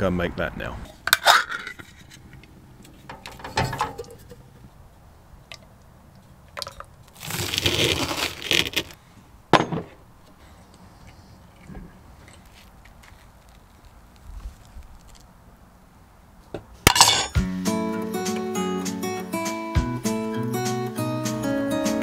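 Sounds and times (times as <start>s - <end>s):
scraping and rustling: 7.1s - 9.0s.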